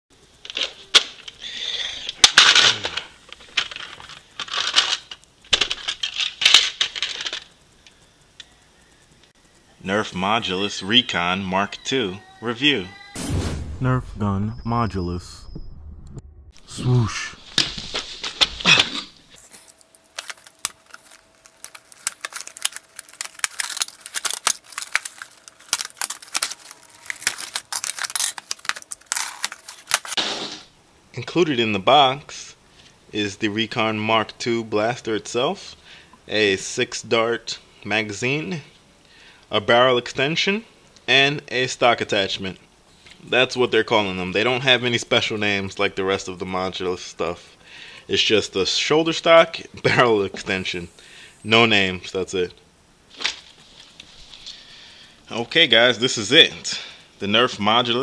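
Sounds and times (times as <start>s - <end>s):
plastic toys clattering: 2.1s - 7.5s, 19.4s - 30.2s
packaging crinkling and rustling: 2.4s - 7.5s, 19.3s - 30.2s.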